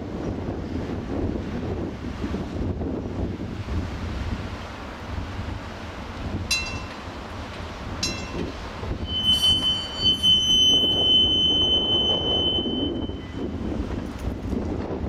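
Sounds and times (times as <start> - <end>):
low rumble of streetcar rolling: 0.0 - 15.0
streetcar wheels squealing on rails: 8.0 - 14.0.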